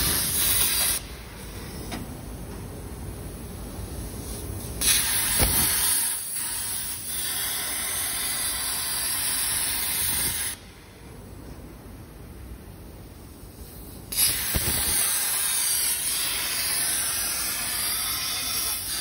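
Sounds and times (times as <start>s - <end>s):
plasma torch hissing: 0.0s - 1.8s, 4.2s - 10.6s, 13.8s - 19.0s.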